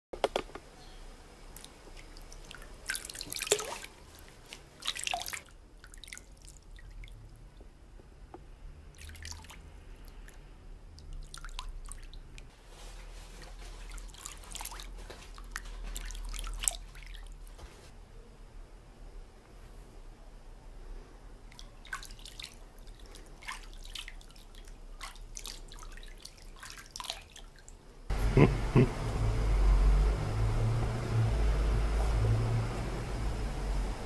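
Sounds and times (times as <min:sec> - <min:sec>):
water splashing in plastic tub: 0:01.5 - 0:07.3, 0:08.9 - 0:10.3, 0:11.0 - 0:17.7, 0:21.5 - 0:27.8
water pouring: 0:01.6 - 0:07.2, 0:09.0 - 0:10.3.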